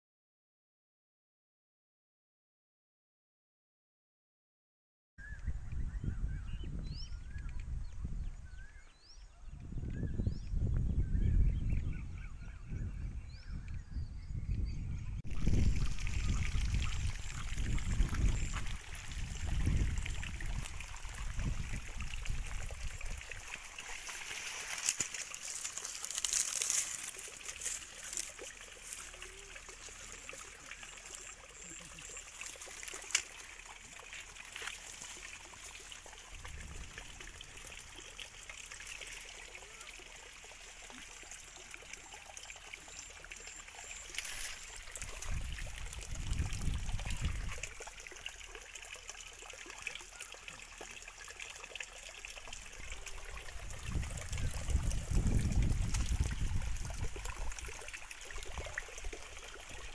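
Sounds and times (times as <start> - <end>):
water trickling: 15.3 - 59.9.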